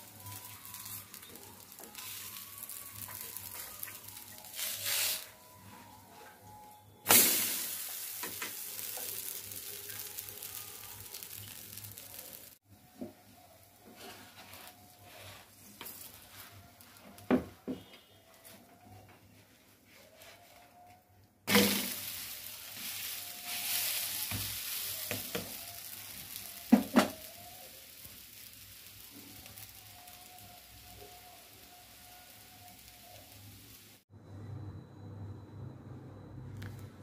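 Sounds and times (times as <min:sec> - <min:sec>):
batter sizzling on hot iron: 0:00.0 - 0:05.8, 0:07.0 - 0:12.6, 0:13.4 - 0:17.4, 0:21.5 - 0:34.0.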